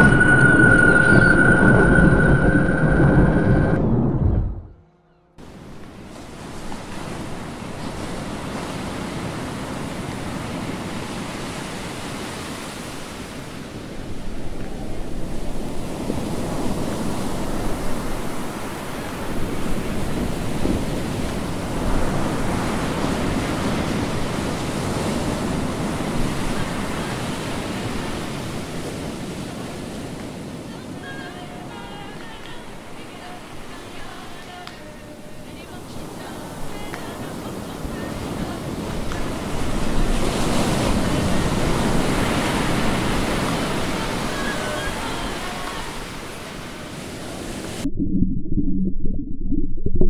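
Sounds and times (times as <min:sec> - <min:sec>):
wind buffeting microphone: 0:00.0 - 0:04.8.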